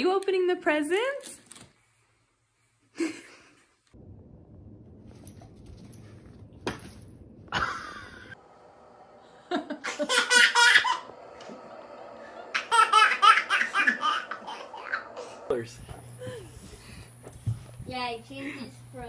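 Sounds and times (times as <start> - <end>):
person laughing: 7.5 - 8.4
baby laughing: 9.8 - 11.6, 12.4 - 15.4.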